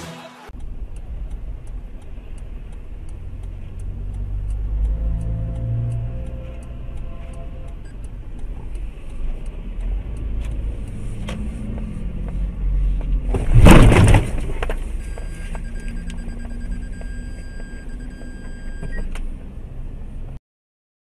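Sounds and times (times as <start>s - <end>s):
vehicle rumble: 0.0s - 20.4s
car crash: 13.3s - 14.8s.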